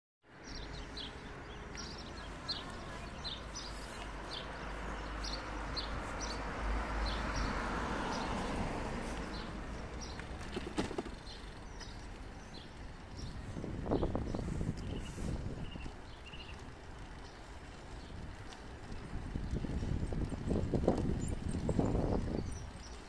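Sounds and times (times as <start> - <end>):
wind rumble on microphone: 0.5 - 23.0
car driving past: 3.2 - 11.6
small bird chirping: 10.0 - 18.6.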